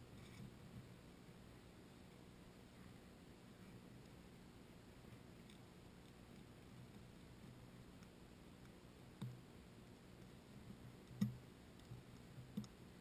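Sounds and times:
soft clicks and knocks: 10.6s - 12.8s.

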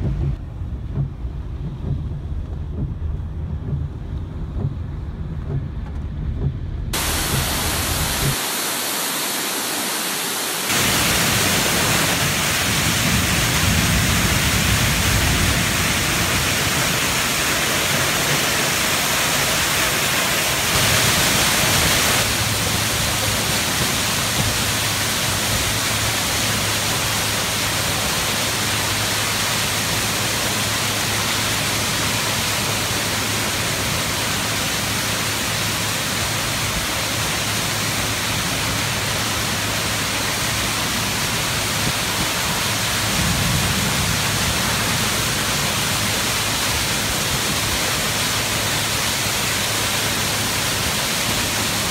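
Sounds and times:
car low rumble: 0.0s - 8.4s
heavy rain hiss: 6.8s - 51.9s
rushing floodwater: 6.9s - 51.9s.

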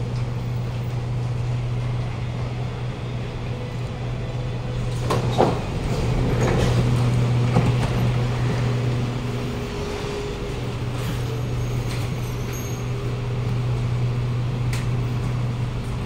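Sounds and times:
train low hum: 0.0s - 16.0s
doors sliding open: 4.5s - 16.0s.

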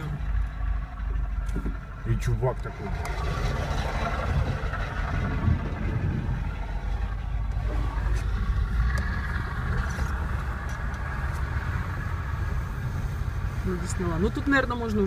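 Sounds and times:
vehicle engines rumbling: 0.0s - 15.0s.

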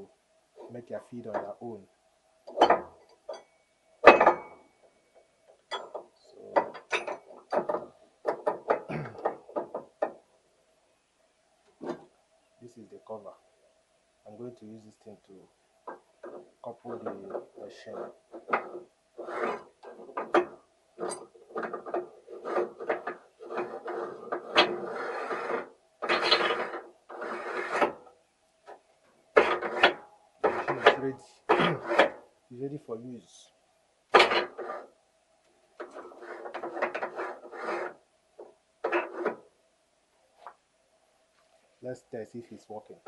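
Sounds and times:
metal cover scraping: 16.2s - 28.1s, 29.4s - 32.2s, 34.1s - 34.9s, 35.8s - 39.4s.

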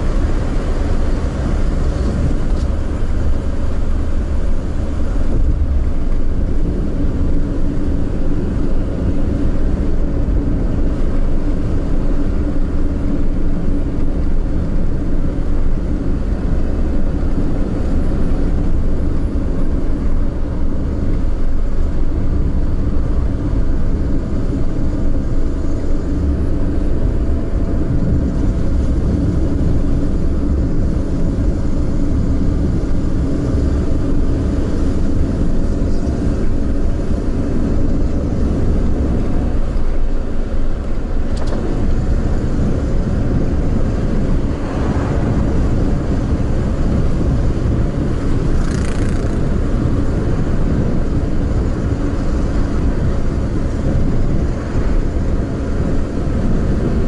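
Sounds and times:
road and tyre noise: 0.0s - 57.0s.

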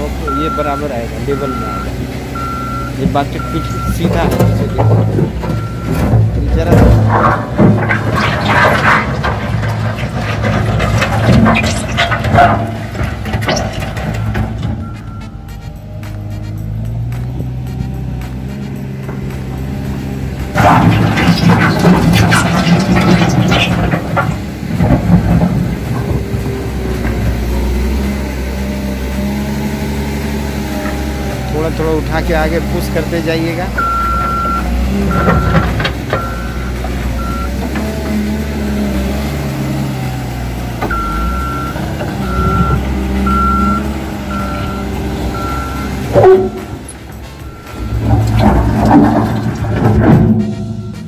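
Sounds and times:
wheel loader diesel engine running: 0.0s - 51.0s
reversing alarm beeping: 0.2s - 6.1s, 14.2s - 20.0s, 33.8s - 37.7s, 40.9s - 51.0s.

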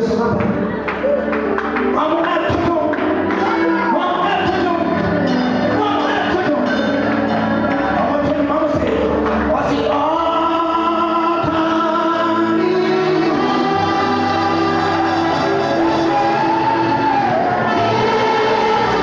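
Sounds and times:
instrumental accompaniment: 0.0s - 19.0s
man singing into a microphone: 7.8s - 19.0s.

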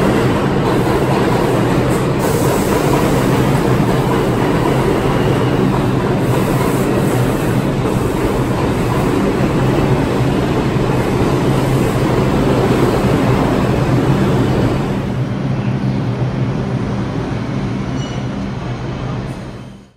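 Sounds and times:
subway train running: 0.0s - 19.9s.

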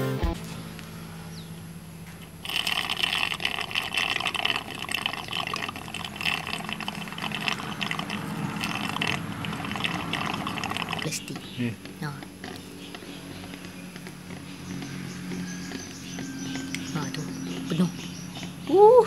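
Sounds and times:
suction pump gurgling: 2.4s - 11.3s.

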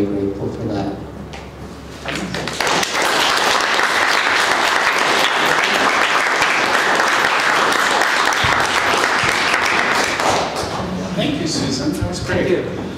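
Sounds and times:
audience applauding: 2.1s - 11.0s.

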